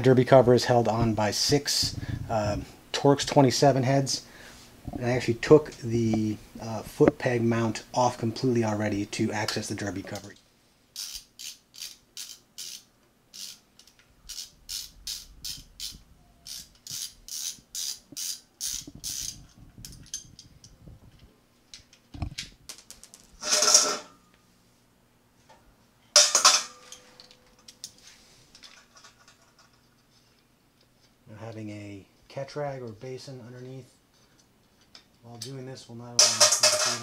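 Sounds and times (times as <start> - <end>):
socket ratchet clicking: 11.0 - 19.4
metal clatters: 22.8 - 24.2, 26.2 - 30.2, 36.2 - 37.0.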